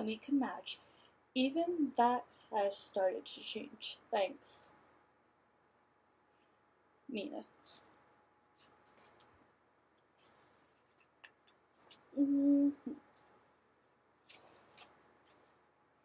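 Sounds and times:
pages turning: 8.6 - 9.4, 10.0 - 12.2, 14.2 - 15.6
person humming: 12.2 - 13.0.

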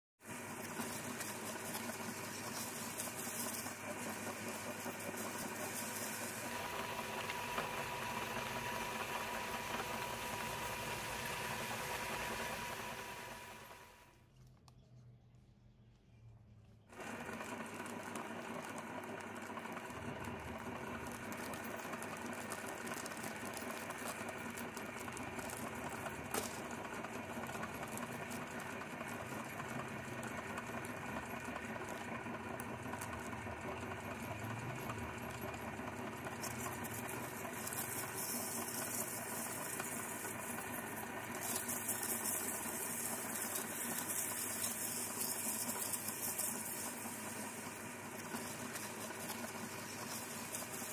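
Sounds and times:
meat grinder motor humming: 0.2 - 14.0, 16.9 - 50.9
chips crushed crackling: 0.3 - 7.6, 21.0 - 28.4, 36.5 - 50.9.

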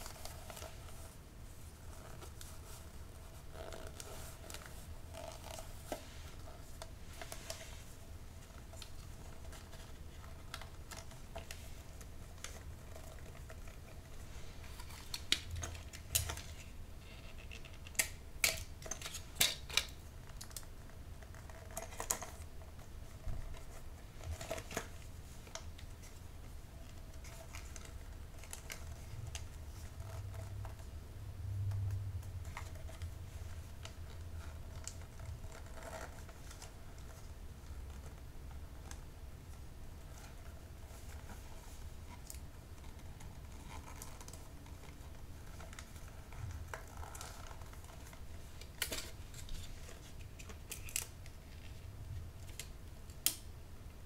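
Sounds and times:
wrapping paper rustling: 0.0 - 52.8
sharp clicks and snaps: 52.4 - 53.5.

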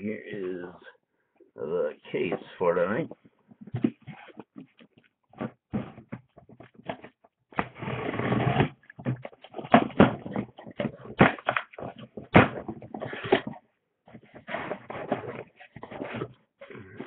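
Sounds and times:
cardboard scraping rustle: 5.4 - 8.8, 12.8 - 16.4.

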